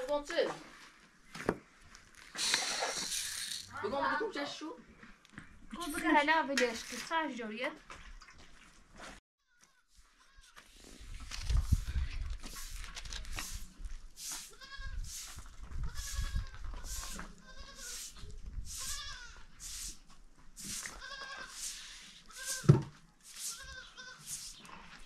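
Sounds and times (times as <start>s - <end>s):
goat bleating: 15.9s - 18.0s, 18.8s - 19.5s, 20.9s - 21.5s, 23.5s - 24.3s.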